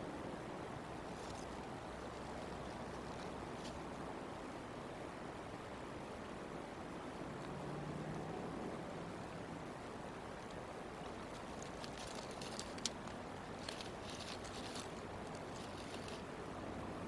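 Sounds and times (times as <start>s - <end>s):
steady outdoor rumble: 0.0s - 17.0s
dry sticks and grass crackling: 1.0s - 4.0s, 10.2s - 16.4s.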